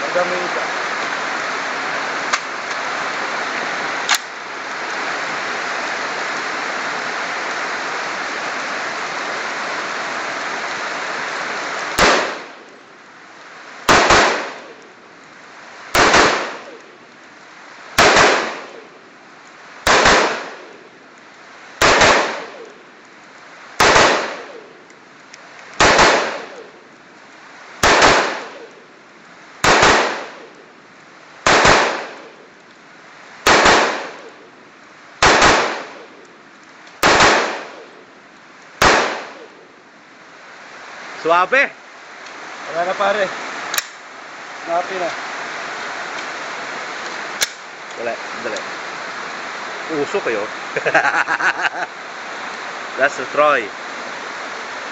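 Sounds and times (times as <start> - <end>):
steady rain hiss: 0.0 - 54.9
rifle shots: 12.0 - 12.6, 13.9 - 14.8, 15.9 - 16.8, 18.0 - 18.8, 19.8 - 20.8, 21.8 - 22.7, 23.8 - 24.7, 25.8 - 26.7, 27.8 - 28.7, 29.6 - 30.5, 31.4 - 32.4, 33.4 - 34.4, 35.2 - 36.1, 37.0 - 37.9, 38.8 - 39.6.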